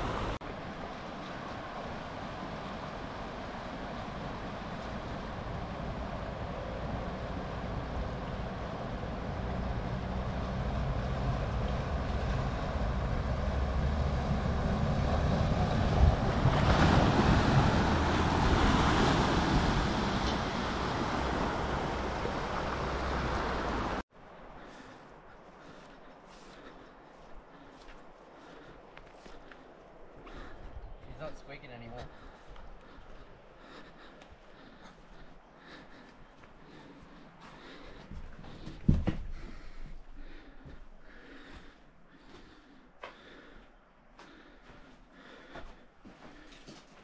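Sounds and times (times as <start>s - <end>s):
river water rushing: 0.0s - 24.0s
vehicle engine: 0.0s - 24.0s
water splashing: 14.2s - 24.0s.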